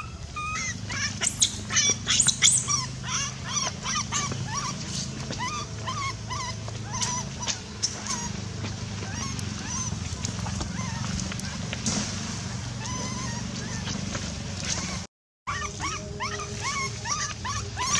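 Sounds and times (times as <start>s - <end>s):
baby monkey crying: 0.0s - 11.7s, 12.6s - 17.9s
steady low hum: 0.0s - 17.9s.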